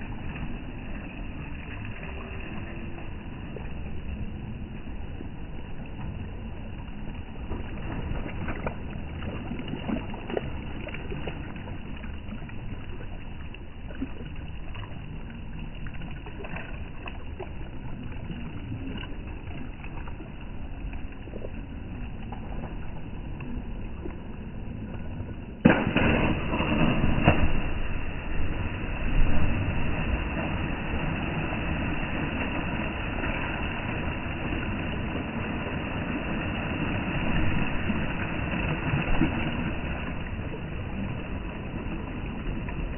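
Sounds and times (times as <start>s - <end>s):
diver splashing into water: 25.6s - 35.1s
waves lapping against stone: 25.6s - 39.3s.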